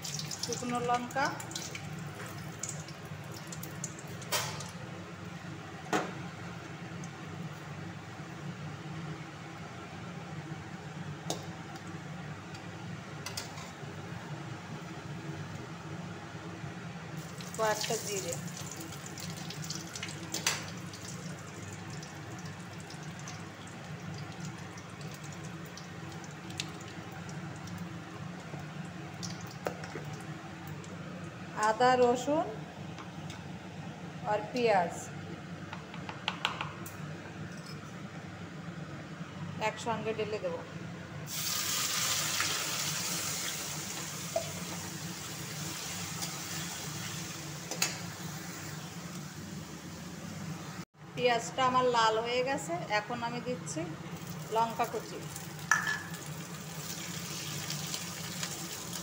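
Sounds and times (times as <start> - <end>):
spices sizzling in hot oil: 17.2 - 28.6, 41.3 - 49.3, 54.1 - 59.0.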